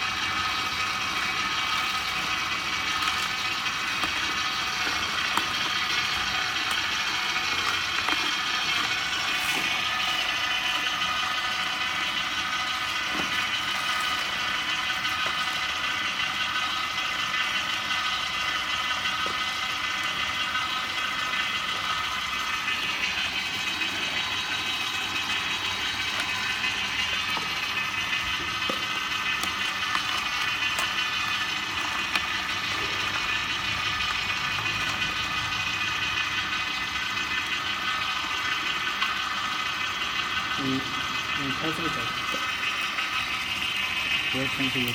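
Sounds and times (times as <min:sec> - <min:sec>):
juicer motor whine: 0:00.0 - 0:44.9.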